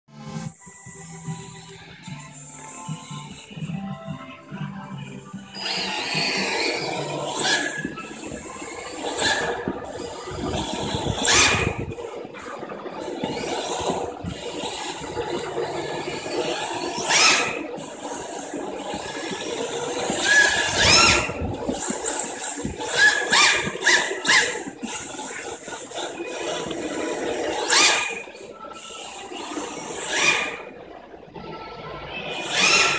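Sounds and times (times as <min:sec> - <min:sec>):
electric motor whine: 0:04.9 - 0:30.8
tyres sliding on floor: 0:05.1 - 0:32.9.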